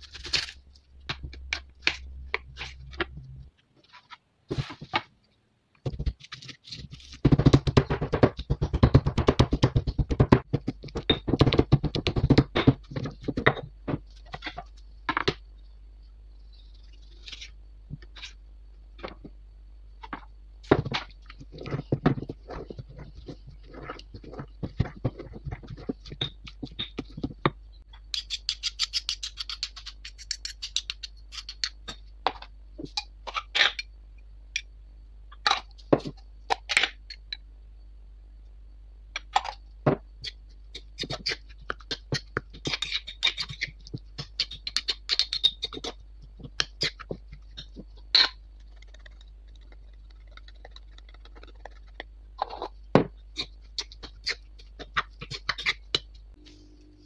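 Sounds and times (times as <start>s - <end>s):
stone pestle pounding in mortar: 7.2s - 13.6s.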